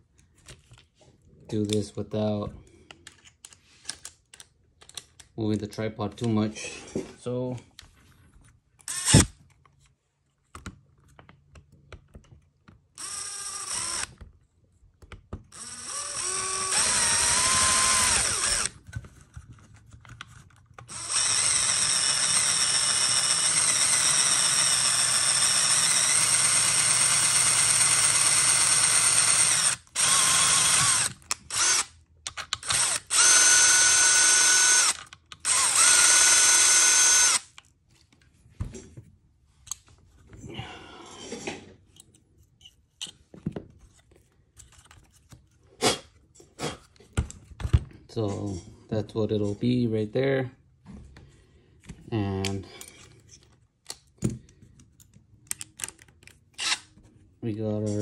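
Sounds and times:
electric drill whining: 0:08.9 - 0:09.3, 0:13.0 - 0:14.2, 0:15.5 - 0:18.8, 0:20.9 - 0:31.9, 0:32.5 - 0:37.6, 0:56.6 - 0:56.9.

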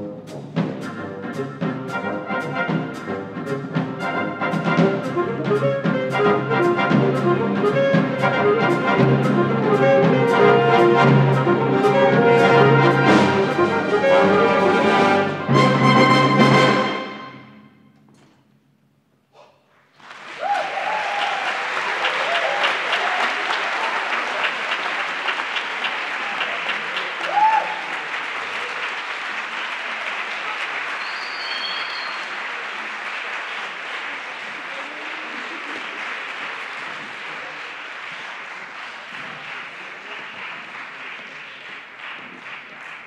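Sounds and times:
audience applause: 0:19.9 - 0:43.0
high whistle: 0:31.0 - 0:32.4.

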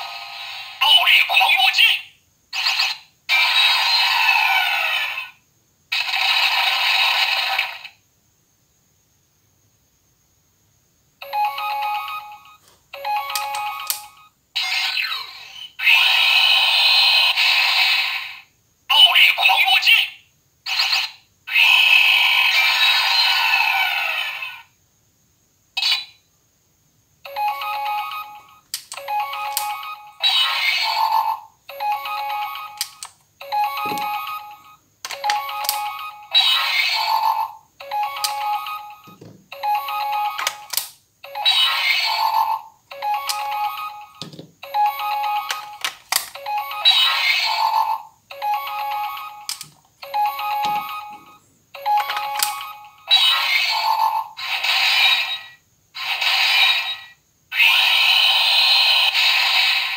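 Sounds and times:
toy electronic jingles: 0:11.2 - 0:16.2, 0:27.3 - 0:59.9.

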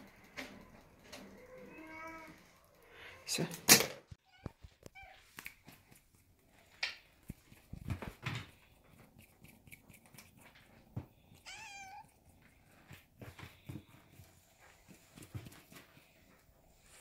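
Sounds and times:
kitten meowing: 0:11.4 - 0:12.1.

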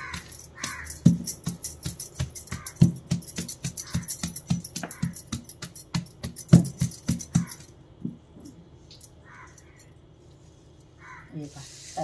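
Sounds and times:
peanuts knocking and crunching on stone: 0:00.0 - 0:08.2.

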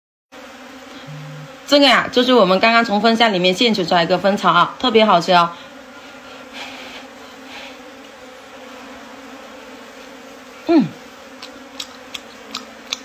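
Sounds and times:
honeybees buzzing: 0:00.3 - 0:13.0
sound sliding down in pitch: 0:01.0 - 0:01.5.

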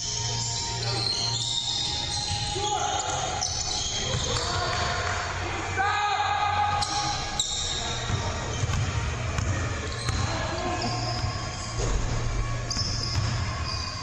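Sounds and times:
voices echoing: 0:00.1 - 0:14.0
basketball bouncing on hardwood: 0:08.1 - 0:10.3.

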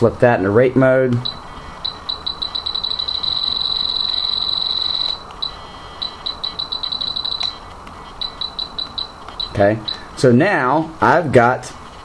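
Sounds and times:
radio transmitter beeping: 0:01.1 - 0:10.3.

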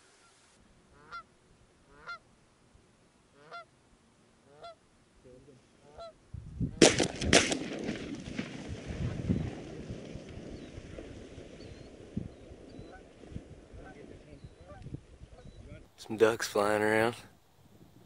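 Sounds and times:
geese honking: 0:00.2 - 0:02.2, 0:03.3 - 0:03.7, 0:04.4 - 0:04.8, 0:05.8 - 0:06.2, 0:13.8 - 0:15.5
shotgun shots: 0:06.8 - 0:09.8.

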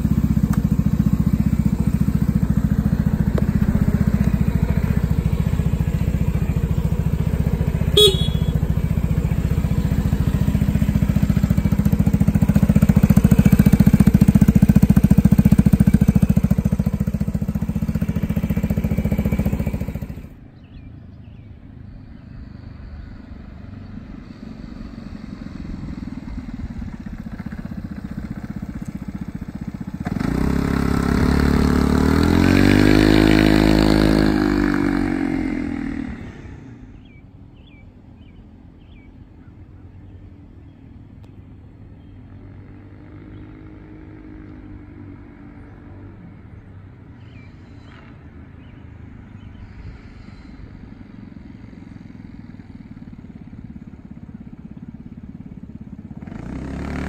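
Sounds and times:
scooter engine running: 0:00.0 - 0:20.4, 0:24.9 - 0:40.6, 0:51.0 - 0:57.0
scooter riding past: 0:00.0 - 0:20.4, 0:22.2 - 0:37.2, 0:47.2 - 0:57.0.

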